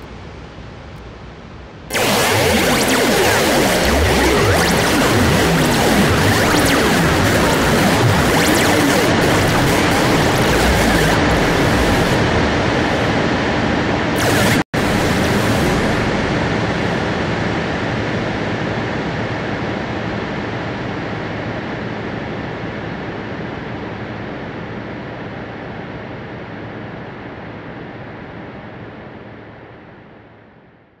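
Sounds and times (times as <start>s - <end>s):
synthesized rushing hiss: 1.9s - 13.2s, 14.2s - 17.2s.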